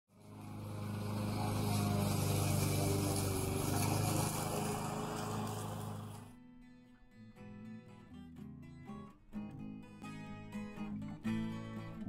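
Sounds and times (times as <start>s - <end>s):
small engine running: 0.1s - 6.3s.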